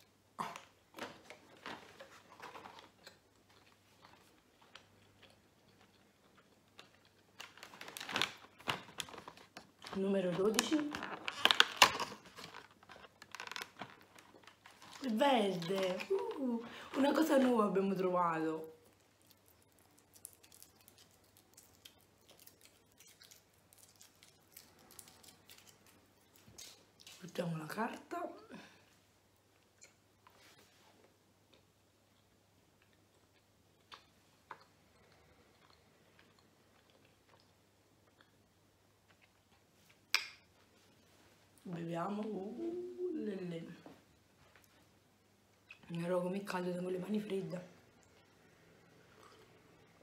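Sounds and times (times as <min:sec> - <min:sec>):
foil wrapper crinkling: 0:07.4 - 0:17.5.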